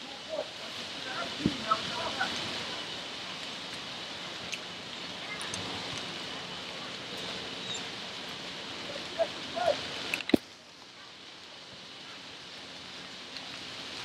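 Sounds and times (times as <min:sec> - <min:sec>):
distant shouts: 0:00.0 - 0:03.0, 0:08.8 - 0:09.9
outdoor background noise: 0:00.0 - 0:14.0.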